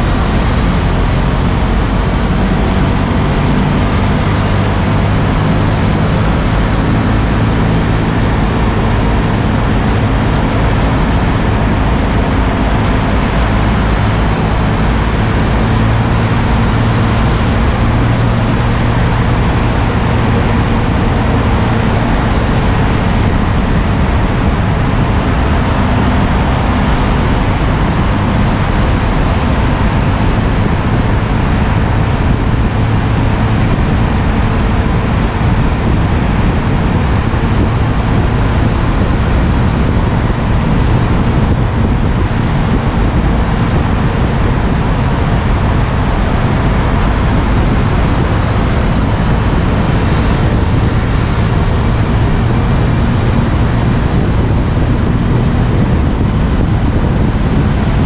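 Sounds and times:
car traffic echoing in tunnel: 0:00.0 - 0:58.0
heavy wind rush: 0:00.0 - 0:58.0
motorcycle engine cruising: 0:00.0 - 0:58.0.

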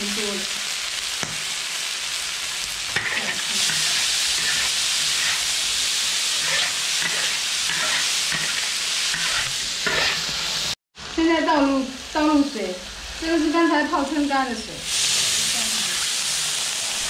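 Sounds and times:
food sizzling in a wok: 0:00.0 - 0:17.0
metal spatula scraping a pan: 0:02.9 - 0:10.8, 0:14.9 - 0:16.2.

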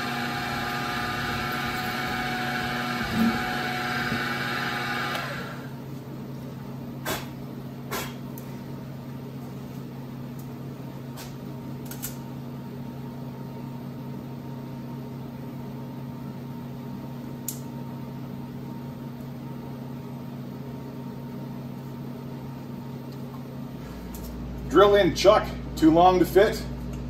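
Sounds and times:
machine hum: 0:00.0 - 0:06.8.

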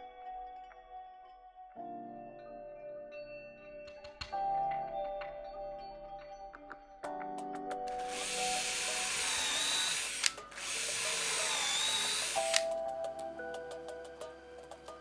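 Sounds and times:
cordless drill boring into wood: 0:08.0 - 0:12.7.

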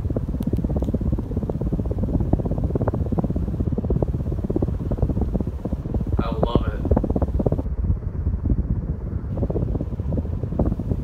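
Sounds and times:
fan air buffeting microphone: 0:00.0 - 0:11.0.

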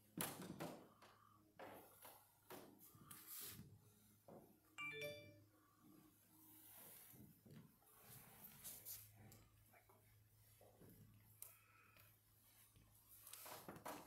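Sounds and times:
faint knocks and rustles: 0:00.0 - 0:04.7, 0:06.9 - 0:14.0
chime-like ding: 0:04.8 - 0:05.5.

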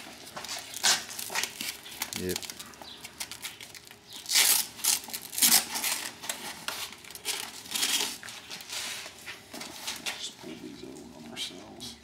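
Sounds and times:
hook-and-loop straps ripping open: 0:00.8 - 0:06.2.

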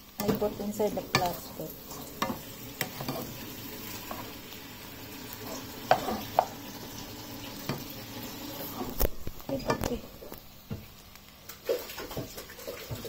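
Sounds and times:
noodles sizzling in a pan: 0:00.0 - 0:13.0
plastic spatula scraping: 0:08.6 - 0:09.9.

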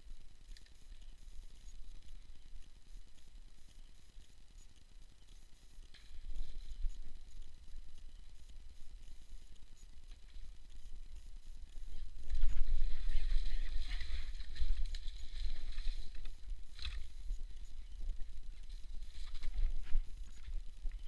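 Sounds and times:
wind rumble on microphone: 0:10.2 - 0:21.0.

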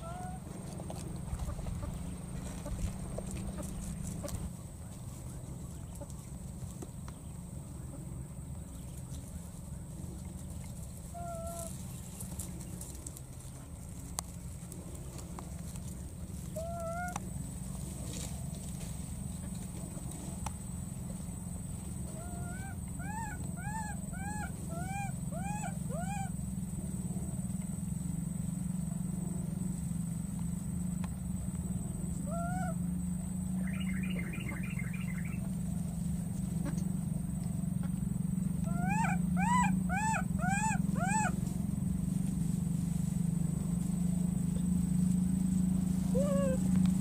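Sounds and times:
baby monkey calling: 0:00.0 - 0:00.5, 0:16.6 - 0:17.2, 0:22.1 - 0:26.4, 0:32.2 - 0:32.8, 0:38.6 - 0:41.4, 0:46.1 - 0:46.8
steady low hum: 0:00.0 - 0:47.0.

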